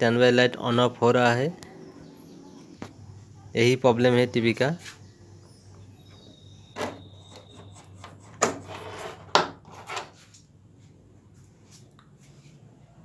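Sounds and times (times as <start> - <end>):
knocks and scrapes on table: 7.6 - 10.2.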